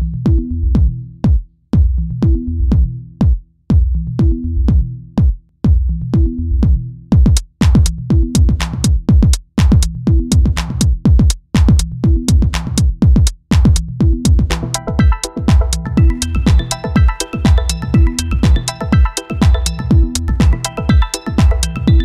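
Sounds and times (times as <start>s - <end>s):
electronic music with drum-machine beat: 6.2s - 22.0s
high percussion: 7.1s - 22.0s.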